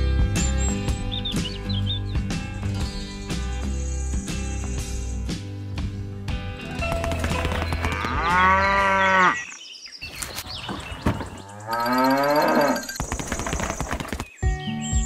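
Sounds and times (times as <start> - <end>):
cattle mooing: 7.8 - 9.6, 11.4 - 12.9.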